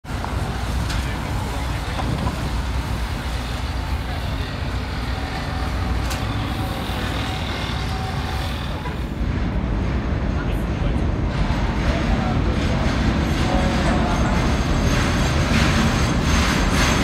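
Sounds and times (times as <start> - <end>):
bus engine droning: 0.0 - 9.8
street traffic noise: 0.0 - 17.0.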